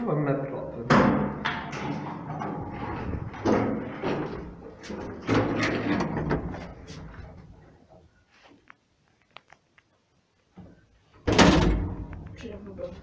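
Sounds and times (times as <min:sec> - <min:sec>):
lift clunking and rattling: 0:00.8 - 0:07.6.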